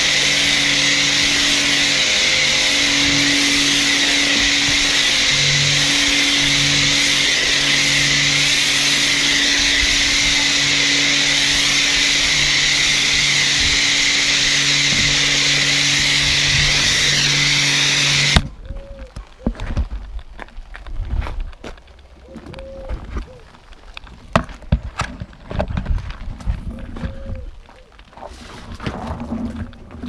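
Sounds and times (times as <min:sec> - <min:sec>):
pressure washer motor hum: 0:00.0 - 0:18.4
pressure washer spray hissing: 0:00.0 - 0:18.4.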